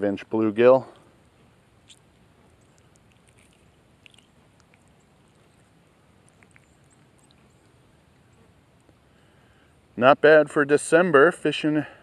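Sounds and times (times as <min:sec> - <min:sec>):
faint outdoor hiss: 0:00.0 - 0:12.0
soft ticks: 0:01.9 - 0:09.0.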